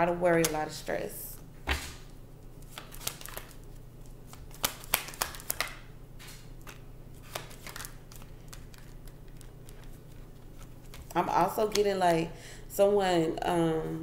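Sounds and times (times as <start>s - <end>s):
cards being shuffled: 1.7s - 11.9s.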